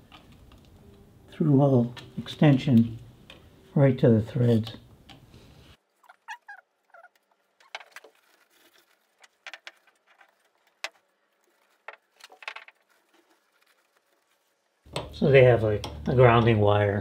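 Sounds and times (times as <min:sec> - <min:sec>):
rustles of gloved hands: 0:04.3 - 0:15.4.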